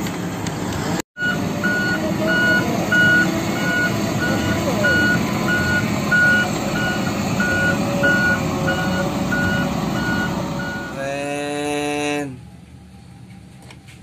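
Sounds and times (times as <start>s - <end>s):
truck engine rumble: 0.0s - 14.0s
reversing alarm beeping: 1.2s - 11.0s.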